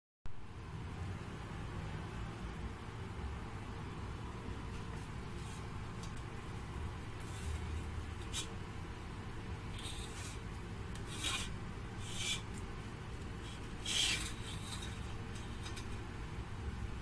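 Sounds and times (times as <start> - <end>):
low background hum: 0.3 - 17.0
bread crust rubbing on rack: 7.1 - 8.7, 9.6 - 16.1.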